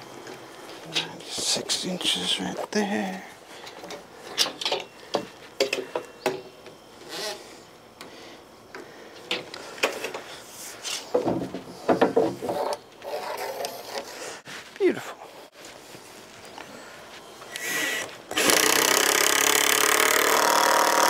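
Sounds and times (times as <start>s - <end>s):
wooden boards knocking and scraping: 11.1s - 12.8s.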